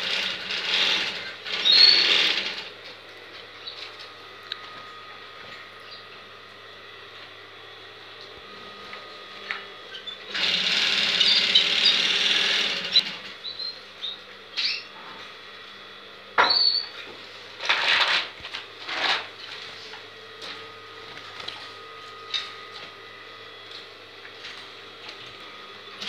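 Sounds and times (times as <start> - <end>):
canaries singing: 1.6 - 2.2, 11.0 - 12.1, 12.9 - 15.0, 16.5 - 16.9
canary chirps and trills: 1.6 - 2.2, 11.2 - 12.0, 12.9 - 14.9, 16.5 - 16.9.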